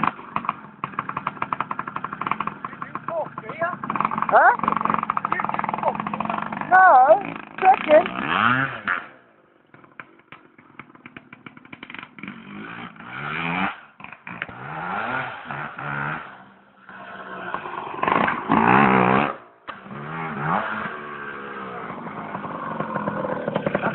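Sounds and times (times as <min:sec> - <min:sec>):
rapid ticks: 0:00.0 - 0:08.2
small motorbike engine revving: 0:00.0 - 0:23.9.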